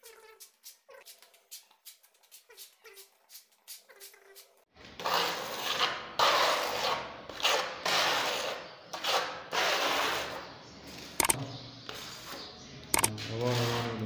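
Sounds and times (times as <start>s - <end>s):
putty knife scraping on wall: 5.0s - 10.5s, 13.3s - 14.0s.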